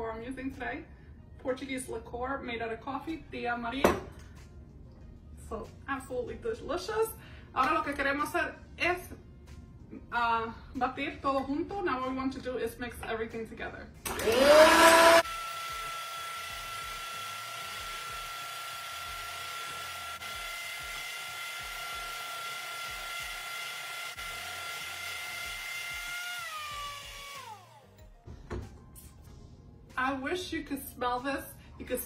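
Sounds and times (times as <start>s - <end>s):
electric hand mixer whining: 14.1s - 28.0s.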